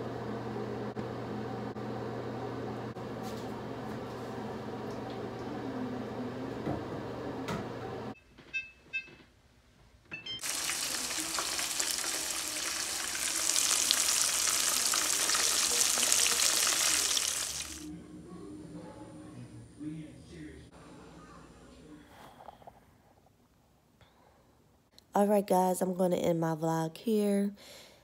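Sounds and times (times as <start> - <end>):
oil sizzling and crackling: 10.4 - 17.9.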